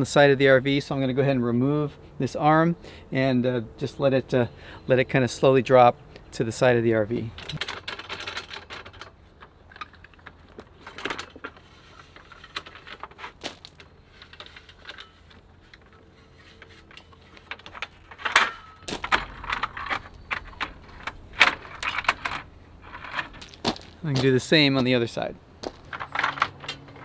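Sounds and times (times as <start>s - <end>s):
metal arm clicks and rattles: 7.2s - 24.0s, 25.6s - 27.0s
metal clanks: 9.7s - 24.9s.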